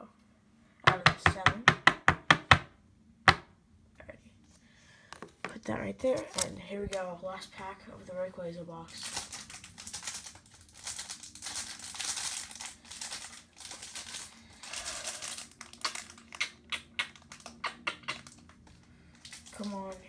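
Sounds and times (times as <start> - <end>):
foil wrapper crinkling: 8.9 - 20.0.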